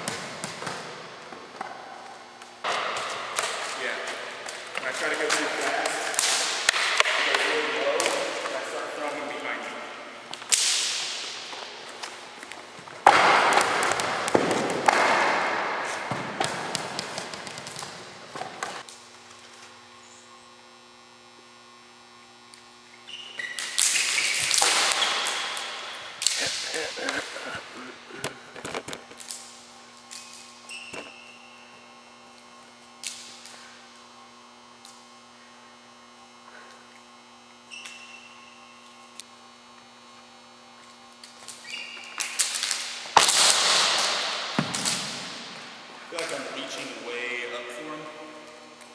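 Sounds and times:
electrical hum: 0.0 - 48.9
plastic juggling props caught: 2.4 - 8.5, 10.4 - 12.2, 13.0 - 18.8, 23.6 - 27.2, 41.2 - 46.4.

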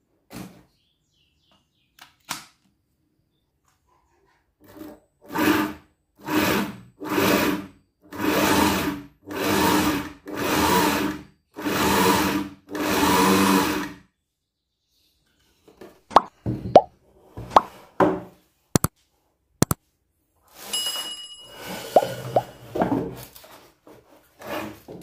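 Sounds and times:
sewing machine motor whirring: 4.6 - 14.0.

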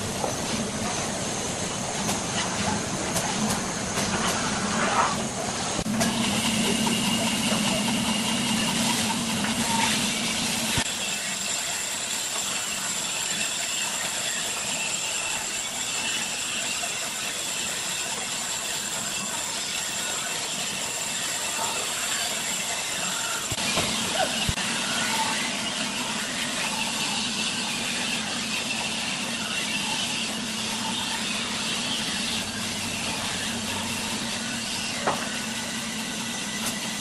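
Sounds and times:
band saw cutting wood: 5.8 - 37.0
low machine hum: 23.6 - 37.0.

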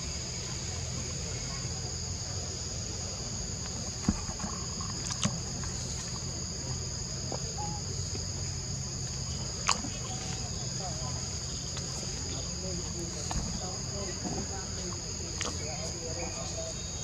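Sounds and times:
insects droning: 0.0 - 17.0.

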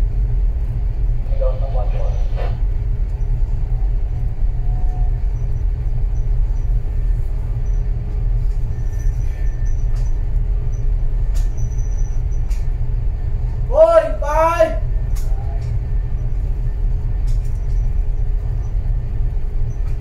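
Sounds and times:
faint constant hum: 0.0 - 20.0
ship engine rumble: 0.0 - 20.0.

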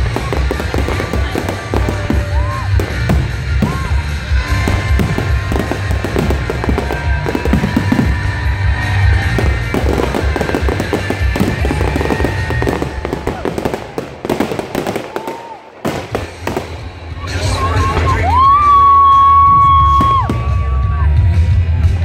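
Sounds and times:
fireworks booming: 0.0 - 17.1
fireworks crackling: 0.0 - 19.1.

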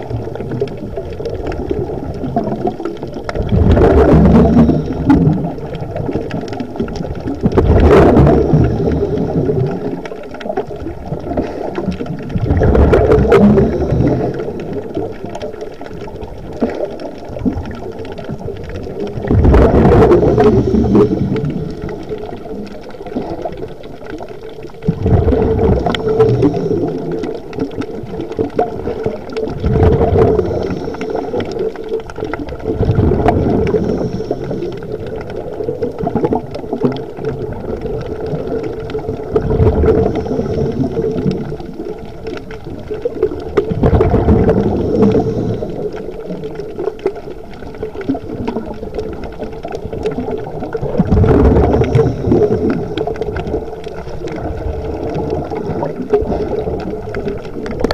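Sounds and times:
exhaled bubbles gurgling: 0.0 - 57.9
underwater rumble: 0.0 - 57.9
scuba regulator inhalations: 3.9 - 5.6, 7.8 - 10.0, 11.2 - 15.0, 19.4 - 22.5, 25.2 - 27.8, 28.8 - 32.3, 33.1 - 35.2, 39.5 - 41.9, 44.1 - 46.6, 51.2 - 56.9.

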